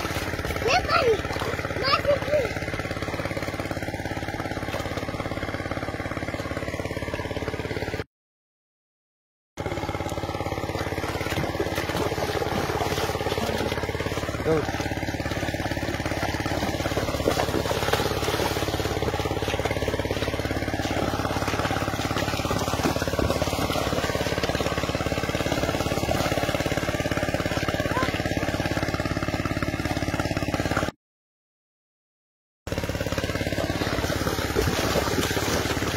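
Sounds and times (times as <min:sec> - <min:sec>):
small engine running: 0:00.0 - 0:08.1, 0:09.6 - 0:31.0, 0:32.7 - 0:35.9.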